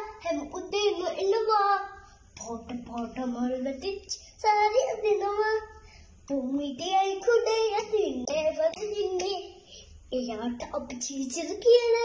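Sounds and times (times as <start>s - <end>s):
girl singing unaccompanied: 0.0s - 12.0s.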